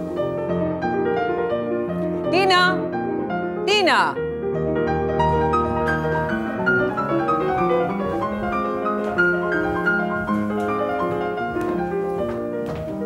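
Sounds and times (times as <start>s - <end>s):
piano music: 0.0s - 13.0s.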